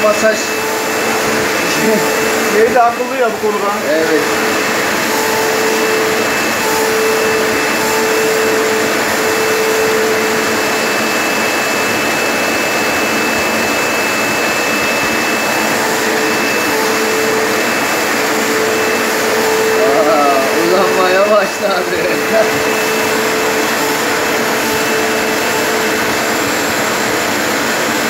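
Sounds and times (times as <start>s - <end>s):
vacuum cleaner running: 0.0s - 28.0s
grooming comb brushing fur: 4.2s - 12.2s, 12.9s - 28.0s.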